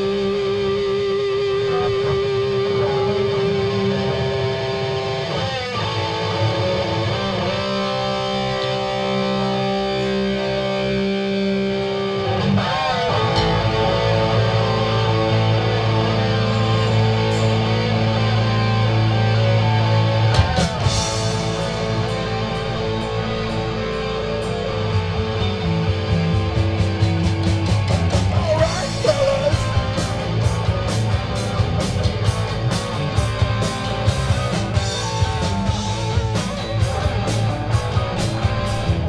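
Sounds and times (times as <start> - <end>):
distorted electric guitars: 0.0 - 39.0.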